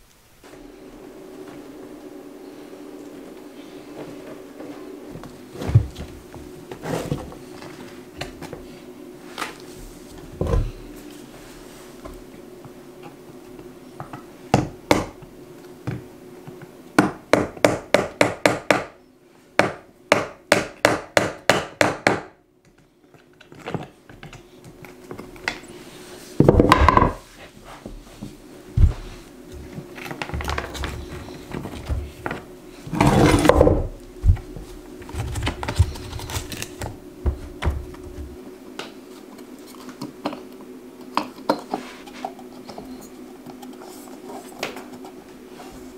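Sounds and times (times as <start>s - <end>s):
hammering on wood: 17.0s - 19.0s, 19.6s - 22.4s.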